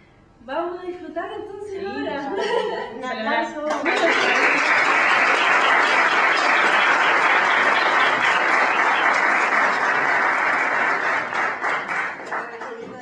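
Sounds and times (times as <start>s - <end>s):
audience applauding: 3.7s - 13.0s.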